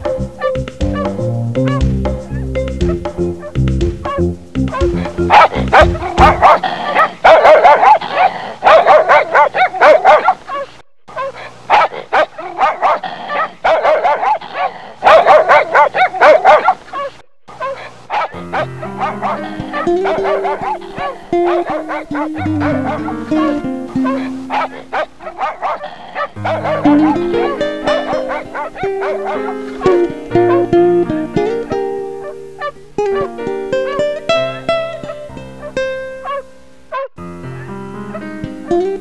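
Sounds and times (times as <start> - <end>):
background music with bass: 0.0 - 6.7, 18.4 - 24.8, 26.4 - 36.3
dog barking: 0.4 - 2.5, 4.1 - 30.7, 32.2 - 33.3, 33.9 - 37.2.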